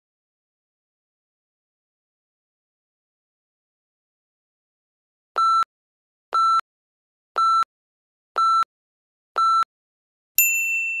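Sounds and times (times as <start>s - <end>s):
continuous timer alarm tone: 5.4s - 5.7s, 6.4s - 6.6s, 7.4s - 7.7s, 8.4s - 8.7s, 9.4s - 9.7s
short electronic timer beeps: 5.4s - 5.7s, 6.4s - 6.6s, 7.4s - 7.7s, 8.4s - 8.7s, 9.4s - 9.7s.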